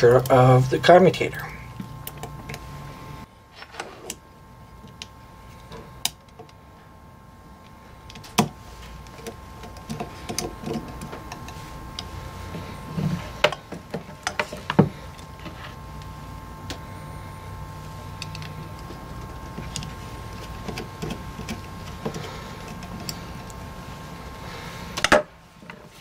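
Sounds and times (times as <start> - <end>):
faint steady hum: 0.0 - 26.0
screwdriver on metal housing: 19.5 - 23.4.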